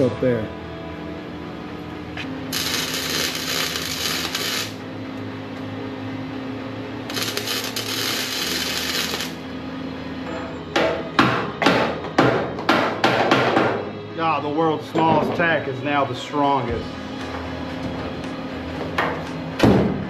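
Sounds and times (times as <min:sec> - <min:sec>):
arc welding crackling hiss: 0:02.5 - 0:04.8, 0:07.1 - 0:09.4.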